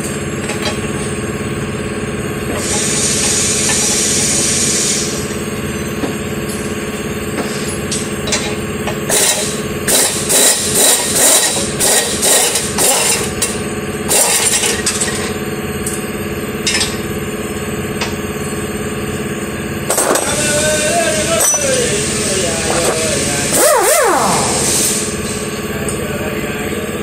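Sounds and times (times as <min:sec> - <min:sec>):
steady background hum: 0:00.0 - 0:27.0
metal tools clinking and scraping: 0:21.4 - 0:21.7.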